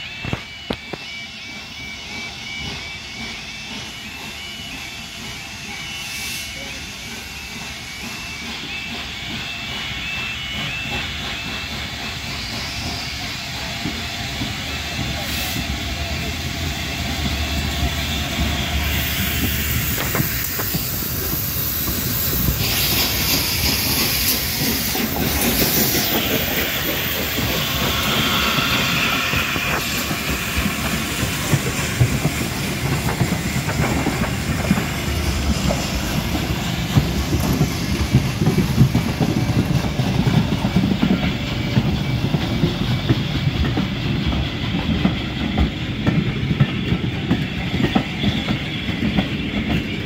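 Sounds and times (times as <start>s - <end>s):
steam locomotive passing: 0.0s - 50.0s
loud hiss of steam: 1.2s - 50.0s.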